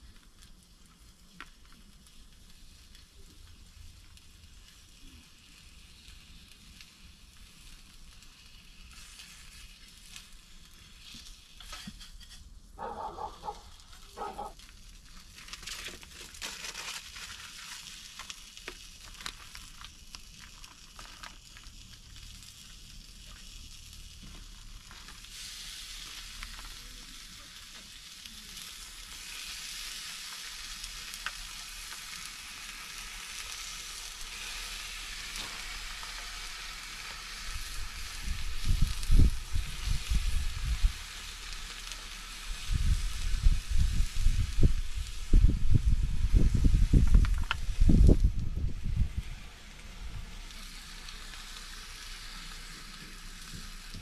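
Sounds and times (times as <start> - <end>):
bacon sizzling in a pan: 0.0 - 54.0
utensil scraping in pan: 8.9 - 14.7.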